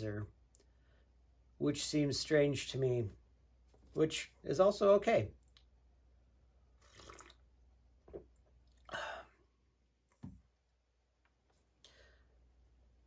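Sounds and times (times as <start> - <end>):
sipping drink: 6.8 - 9.4.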